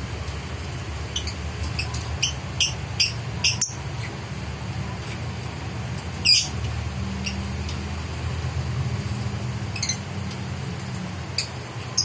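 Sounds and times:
lovebird chirping: 1.1s - 4.1s, 6.2s - 6.6s, 9.7s - 10.1s.

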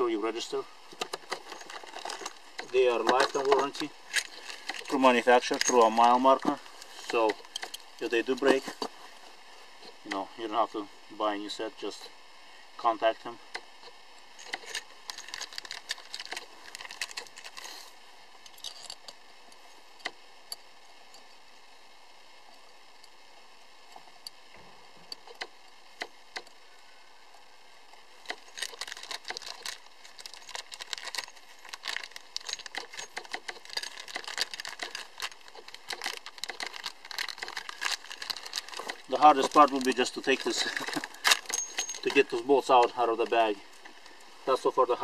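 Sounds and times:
plastic bag crinkling: 1.2s - 8.8s, 14.4s - 17.8s, 28.2s - 43.4s.

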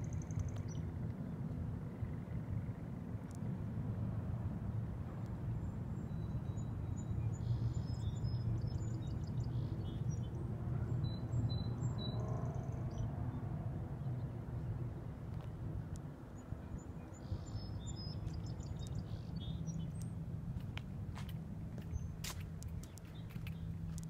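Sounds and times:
low outdoor rumble: 0.0s - 24.0s
small birds chirping: 16.3s - 24.0s.

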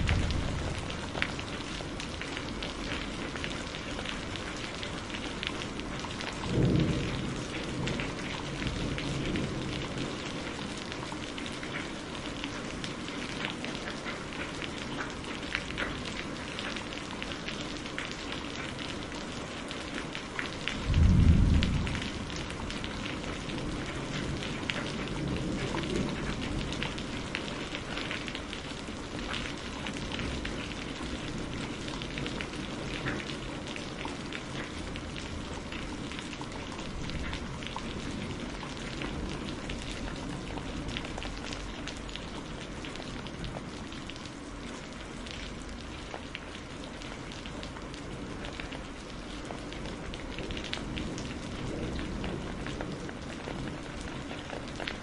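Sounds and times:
low rumble of thunder: 0.0s - 11.8s, 19.8s - 43.9s, 48.1s - 55.0s
steady rain with drops ticking: 0.0s - 55.0s.

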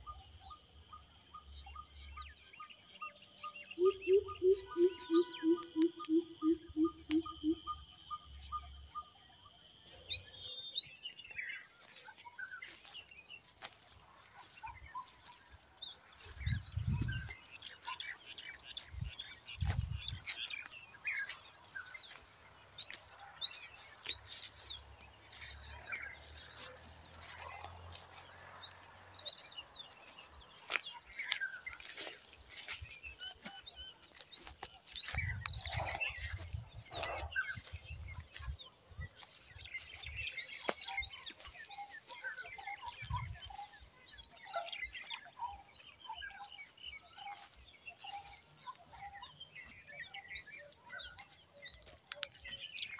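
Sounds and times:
high insect trill: 0.0s - 14.2s
birds chirping and calling: 0.0s - 52.9s.

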